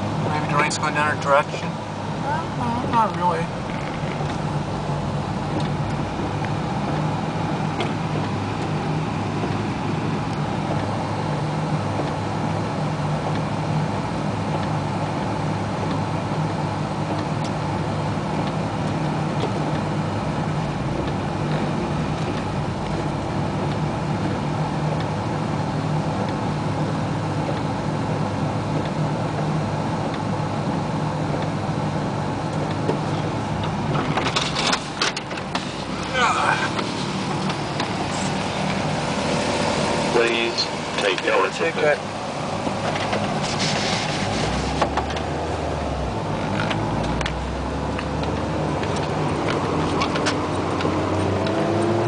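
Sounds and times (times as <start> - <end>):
car engine running steadily: 0.0 - 52.0.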